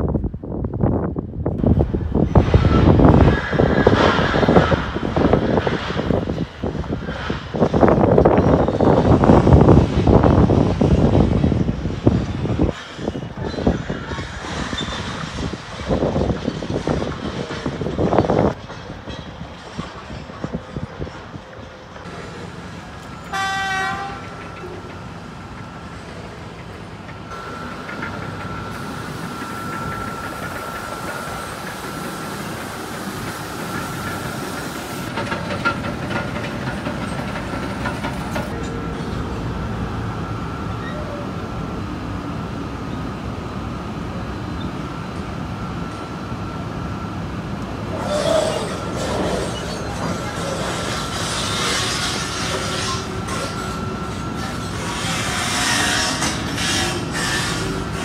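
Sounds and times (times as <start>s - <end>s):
heavy machinery whining: 1.6s - 58.0s
horn toot: 23.3s - 24.3s.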